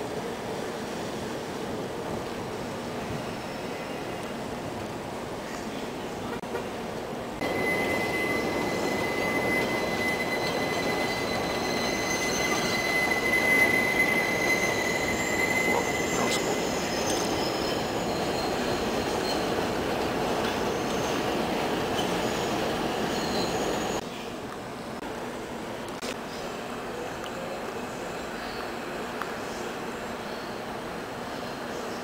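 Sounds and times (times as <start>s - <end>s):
train rumbling: 0.0s - 24.0s
train wheels squealing: 3.0s - 4.2s, 7.4s - 24.0s.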